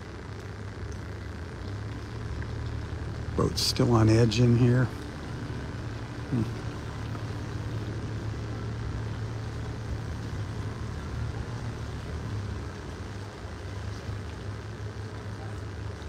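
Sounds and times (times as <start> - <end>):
boat motor droning: 0.0 - 16.0
water noise: 0.0 - 16.0.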